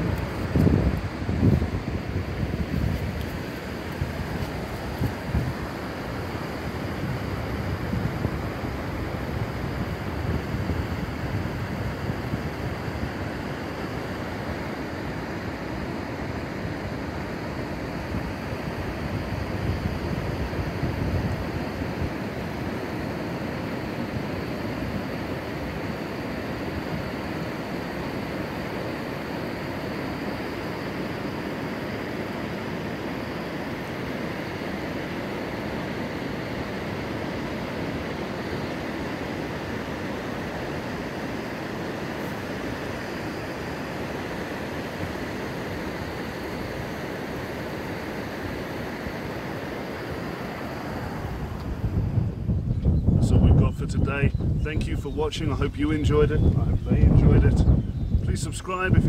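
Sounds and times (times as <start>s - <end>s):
wind buffeting microphone: 0.0s - 13.5s, 17.9s - 22.6s, 51.0s - 59.0s
surf on sandy beach: 0.0s - 52.7s.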